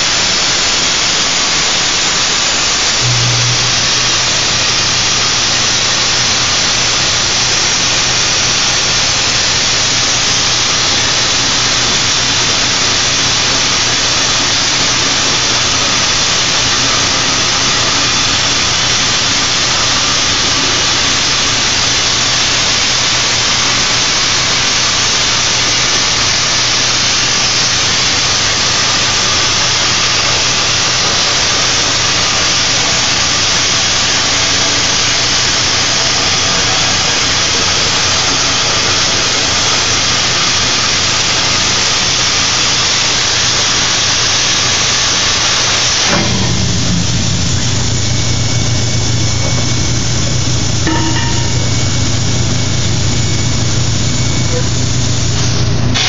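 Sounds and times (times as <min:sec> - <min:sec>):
plasma torch hissing: 0:00.0 - 0:56.0
low steady hum: 0:03.0 - 0:06.1, 0:47.4 - 0:54.6.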